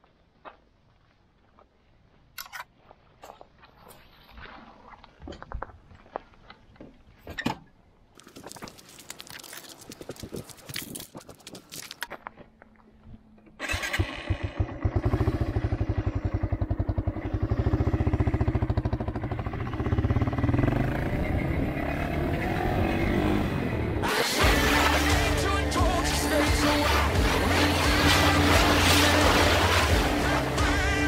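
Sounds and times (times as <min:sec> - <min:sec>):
clicks and scrapes handling bike: 0:02.4 - 0:04.4, 0:08.2 - 0:12.4
motorcycle engine starting and running: 0:13.4 - 0:31.0.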